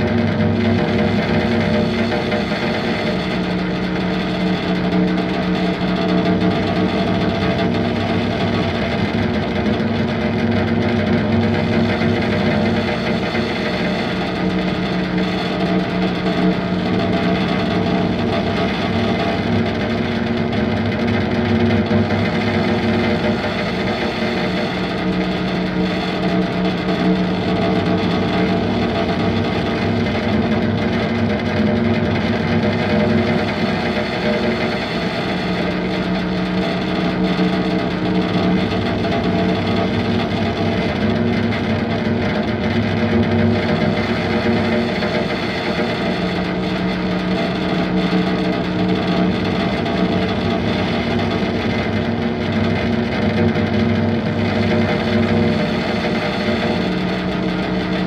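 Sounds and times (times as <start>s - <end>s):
distorted guitar-like sound: 0.0s - 58.0s
droning tones: 0.0s - 58.0s.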